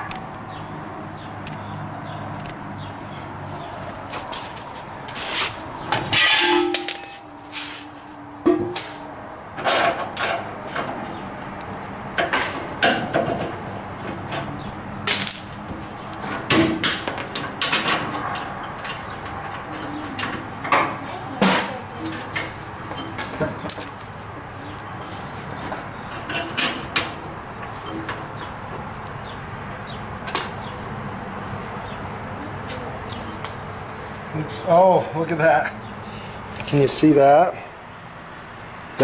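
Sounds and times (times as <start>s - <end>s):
hand tools clanking on metal: 5.8s - 24.2s, 24.9s - 27.2s.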